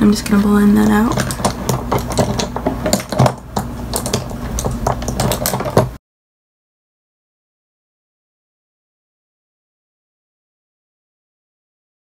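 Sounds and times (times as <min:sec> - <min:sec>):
low steady hum: 0:00.0 - 0:06.0.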